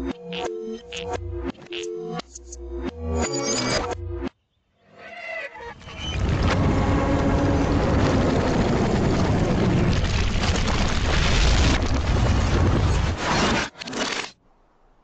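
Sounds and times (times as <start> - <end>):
loud low rumbling: 6.2 - 10.3.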